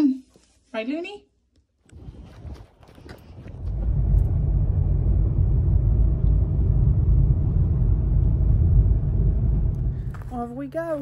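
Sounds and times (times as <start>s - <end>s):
car engine and road noise: 3.1s - 11.0s.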